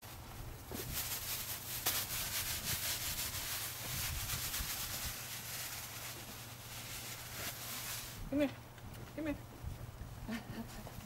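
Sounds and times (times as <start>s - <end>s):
plastic bag crinkling: 0.8s - 8.2s.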